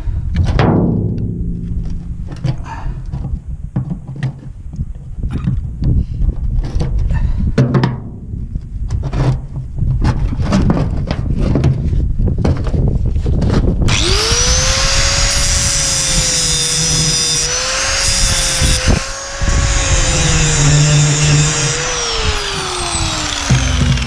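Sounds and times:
hard ringing metal strike: 0:00.6 - 0:03.6
metal knocking and clanking: 0:00.6 - 0:04.5.

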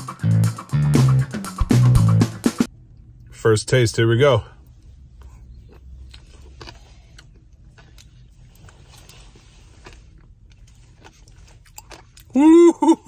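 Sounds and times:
low steady rumble: 0:02.7 - 0:12.9
chewing crunches and mouth clicks: 0:04.7 - 0:12.4.

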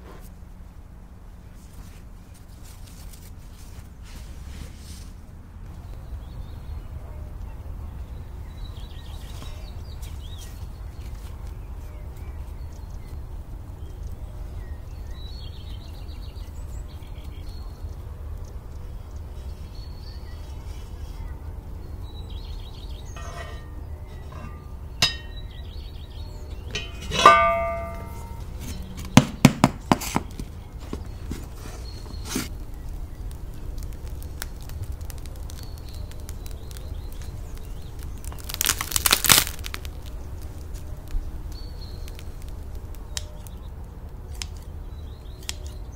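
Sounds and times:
crackling rustle: 0:00.0 - 0:29.2, 0:29.9 - 0:45.9
iron pot lid clanking: 0:23.2 - 0:25.6, 0:26.6 - 0:28.9
sharp metal knocks: 0:23.2 - 0:25.6, 0:26.6 - 0:30.3.

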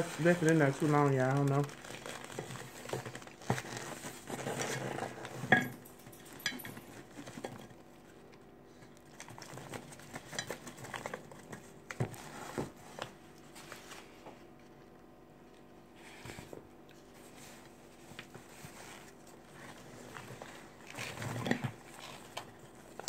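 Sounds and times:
paper crinkling: 0:00.0 - 0:05.3.

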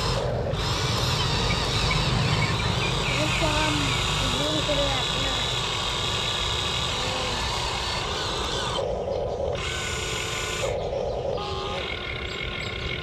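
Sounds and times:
electric motors whirring: 0:00.0 - 0:13.0.

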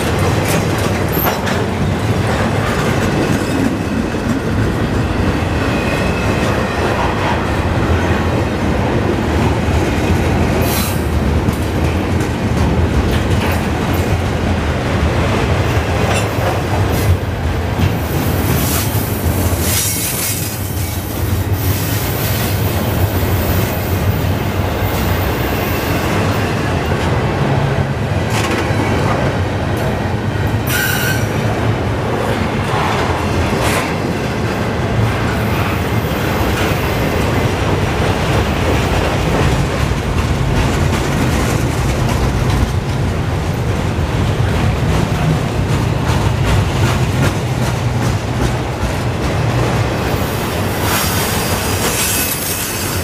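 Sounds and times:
wheels clacking over rail joints: 0:00.0 - 0:05.1, 0:32.1 - 0:53.0
steel wheels rumbling on rail: 0:00.0 - 0:53.0
wheel squeal: 0:30.7 - 0:31.3.

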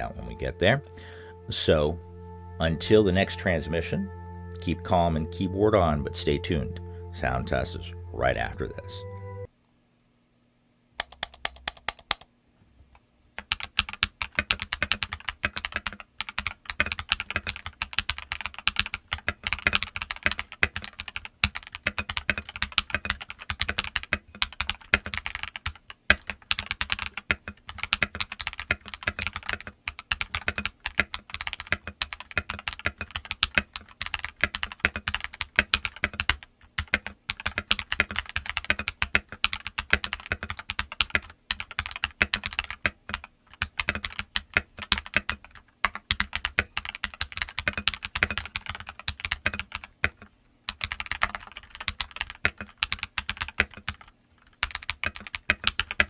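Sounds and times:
fast typing on mechanical keyboard: 0:11.0 - 0:12.3, 0:13.4 - 0:56.0.

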